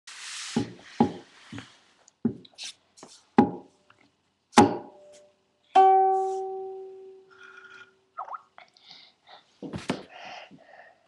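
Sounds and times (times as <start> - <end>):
ukulele strum: 5.8 - 7.2.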